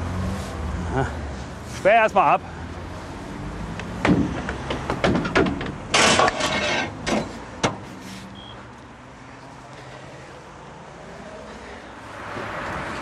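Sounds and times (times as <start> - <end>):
equipment knocking and clattering: 4.0 - 7.8.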